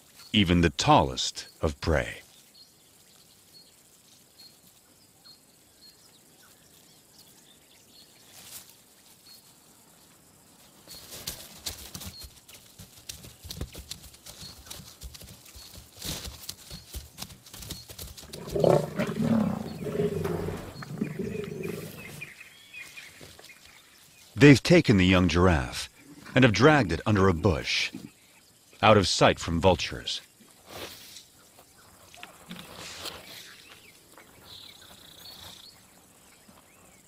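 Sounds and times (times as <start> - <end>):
lions growling and snarling: 18.2 - 22.4.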